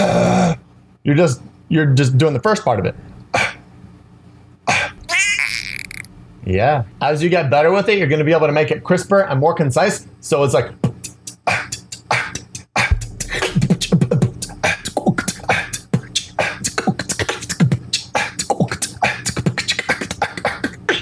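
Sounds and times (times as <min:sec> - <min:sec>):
beatboxed cough snare hits: 0:03.4 - 0:03.6, 0:04.7 - 0:05.1, 0:10.8 - 0:21.0
low held bass tone: 0:12.9 - 0:16.2.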